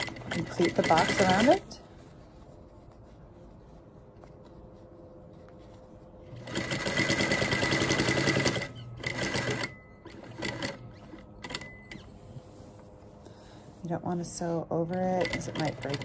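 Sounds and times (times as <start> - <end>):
sewing machine stitching: 0.0 - 1.6, 6.4 - 12.1, 15.2 - 16.0.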